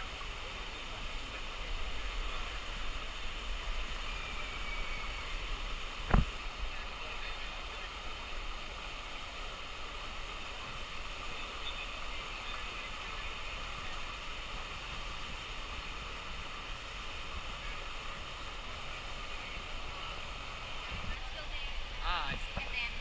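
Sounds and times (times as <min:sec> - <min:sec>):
water rushing down slide: 0:00.0 - 0:23.0.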